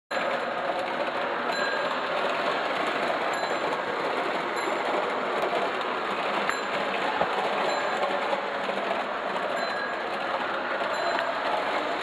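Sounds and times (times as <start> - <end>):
toy train rattling on rails: 0.1 - 12.0.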